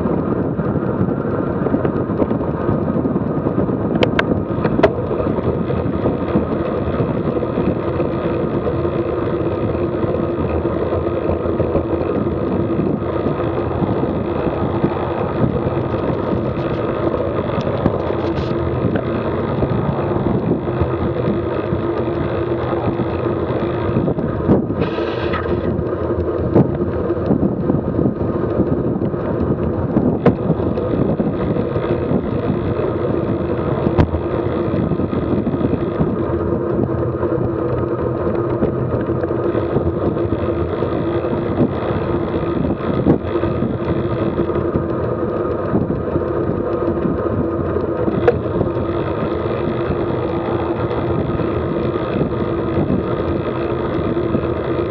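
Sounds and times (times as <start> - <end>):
bicycle road noise: 0.0 - 54.9
wind rushing over microphone: 0.0 - 54.9.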